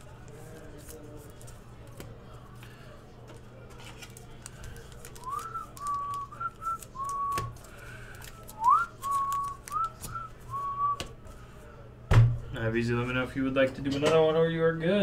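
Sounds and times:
trading cards clicking: 0:03.3 - 0:10.2
person whistling a tune: 0:05.2 - 0:07.5, 0:08.6 - 0:11.0.

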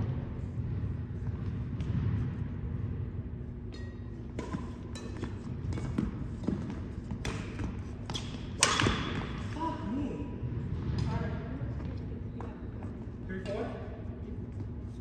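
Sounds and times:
hum of large hall: 0:00.0 - 0:15.0
rackets striking shuttlecock: 0:03.7 - 0:09.6.

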